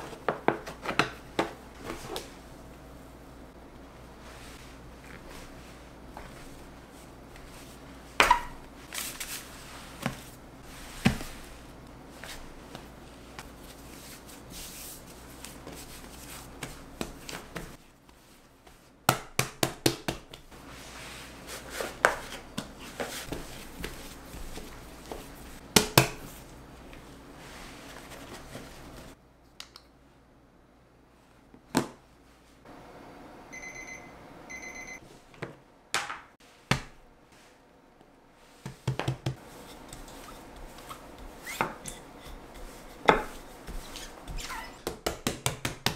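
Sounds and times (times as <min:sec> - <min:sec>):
short electronic beeps: 0:33.5 - 0:35.0.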